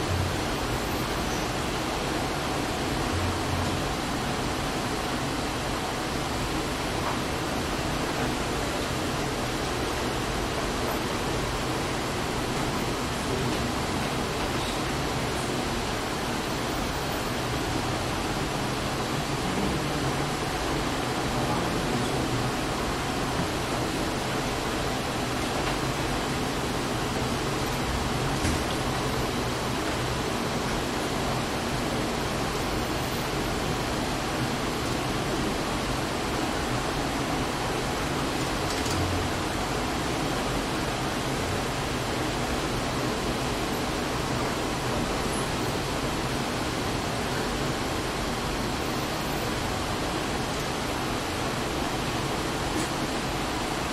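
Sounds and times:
steady recording hiss: 0.0 - 53.9.

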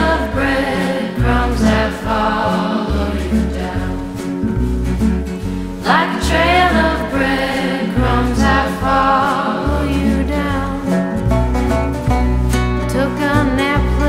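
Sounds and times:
person singing: 0.0 - 4.3, 5.8 - 11.2, 12.9 - 14.0
bass line and music: 0.0 - 14.0.

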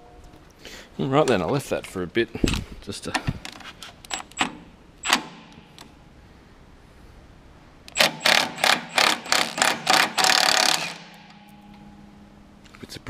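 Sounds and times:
impact wrench hammering bolt: 4.1 - 5.8, 7.9 - 11.6.

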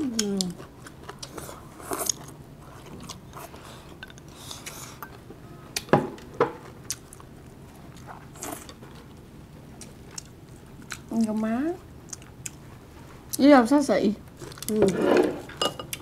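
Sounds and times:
chewing: 0.0 - 5.2, 6.6 - 13.4, 14.3 - 14.9
utensils clinking on dishes: 14.9 - 16.0.

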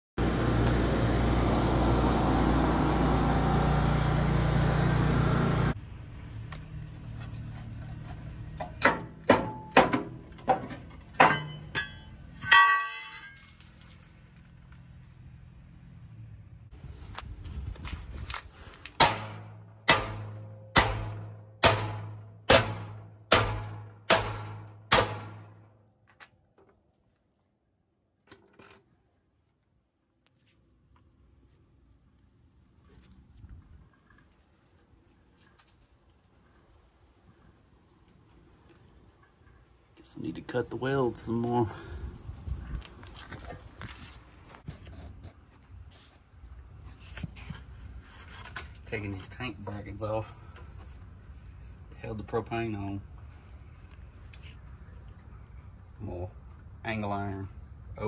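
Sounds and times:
hammer striking steel: 8.6 - 13.4, 19.0 - 25.5
hammer clanging on steel bracket: 8.6 - 13.5.

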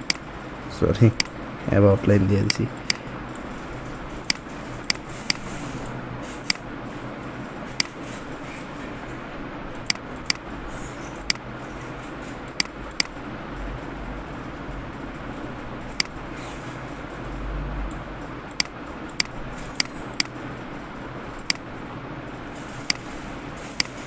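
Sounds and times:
computer mouse clicking: 0.0 - 0.2, 12.5 - 13.2, 16.0 - 16.2, 18.5 - 20.4, 22.8 - 23.1, 23.8 - 24.0
low background hum: 0.0 - 24.0.

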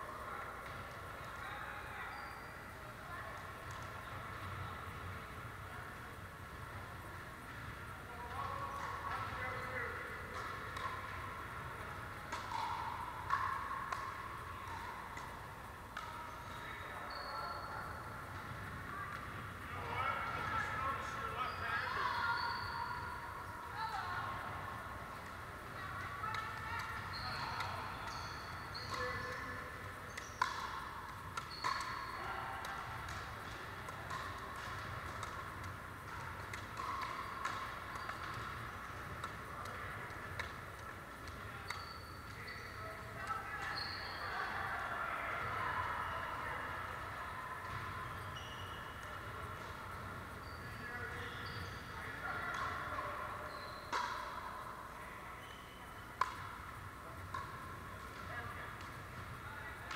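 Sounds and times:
paddles striking pickleball: 8.6 - 16.9, 24.9 - 44.7, 51.1 - 54.6, 55.4 - 59.9.

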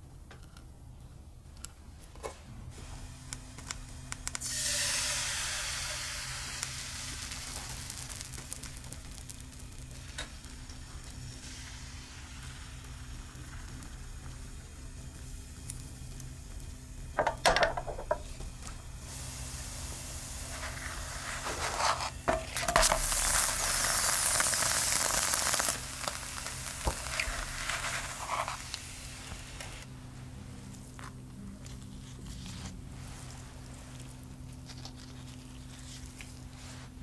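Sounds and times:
batter sizzling in a frying pan: 2.8 - 29.9
spatula scraping a pan: 20.6 - 23.0.

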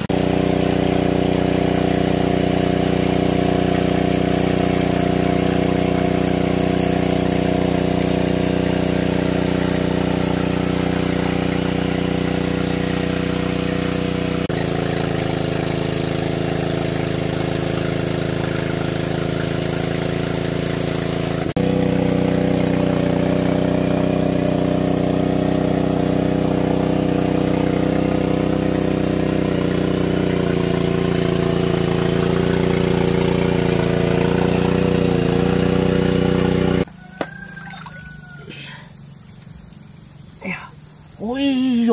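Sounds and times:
water pump engine running: 0.0 - 41.9.

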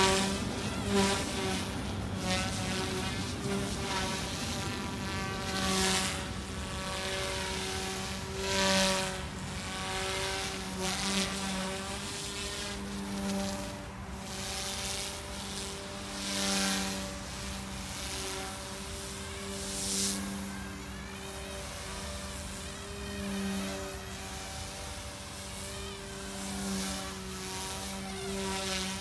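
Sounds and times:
rc helicopter rotor whine: 0.0 - 29.0.

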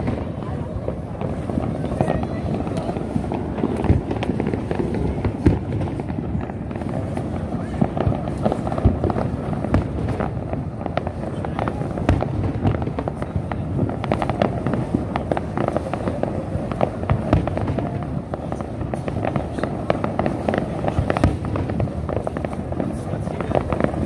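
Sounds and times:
fireworks bangs and crackles: 0.0 - 24.0.

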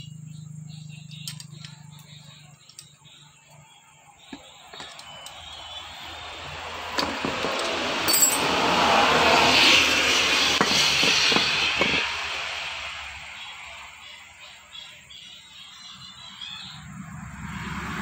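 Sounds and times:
metal parts clinking: 1.1 - 3.1, 4.3 - 5.6, 6.9 - 8.5
rushing noise: 5.8 - 14.2.

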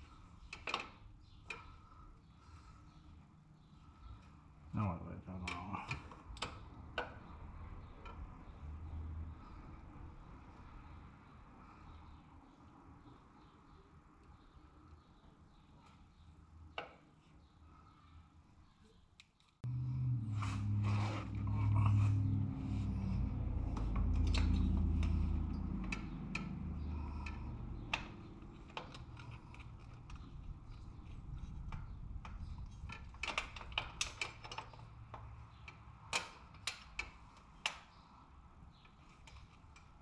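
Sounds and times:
low hum shifting in pitch: 19.6 - 28.5.

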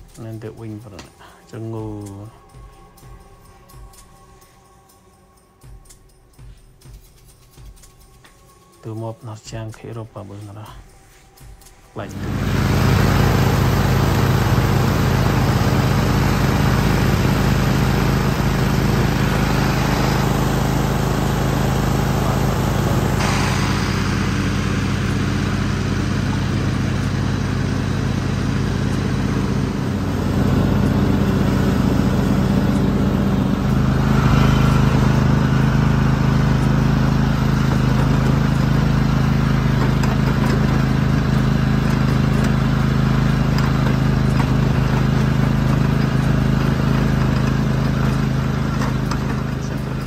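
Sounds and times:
riding lawn mower engine running: 12.0 - 50.0.

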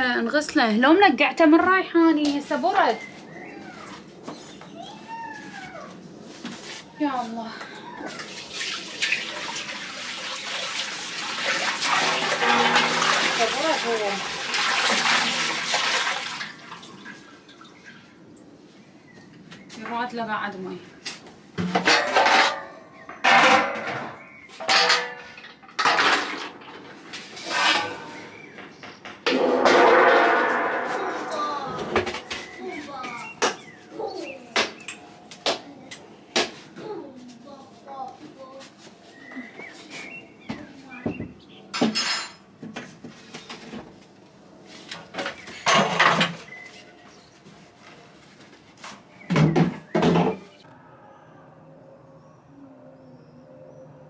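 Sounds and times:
knocks and scraping clatters: 11.8 - 13.8, 21.1 - 33.8, 44.7 - 46.8, 48.2 - 50.6
metal pots clanking: 11.9 - 13.9, 21.6 - 32.6, 45.3 - 46.6.

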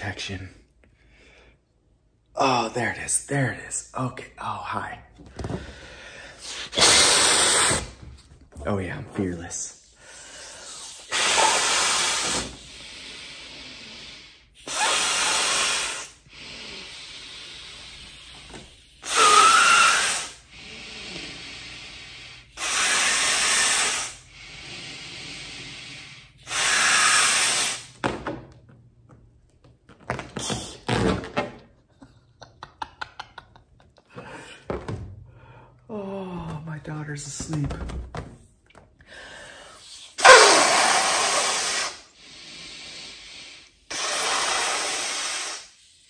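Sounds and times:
quiet breathing: 5.2 - 6.7, 24.1 - 26.5, 39.0 - 40.2
person blowing into glove: 6.4 - 8.0, 10.6 - 12.9, 14.6 - 24.5, 25.1 - 28.0, 30.3 - 31.3, 39.7 - 46.0
inflated glove squeaking: 18.5 - 20.4, 30.0 - 31.4, 40.2 - 42.0.

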